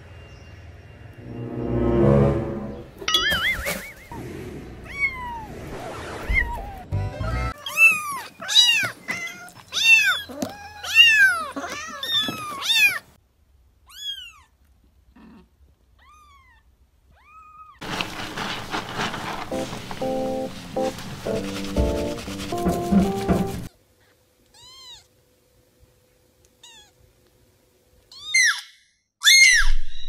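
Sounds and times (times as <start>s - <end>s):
music: 1.2s - 3.0s, 6.9s - 7.5s, 19.1s - 23.7s.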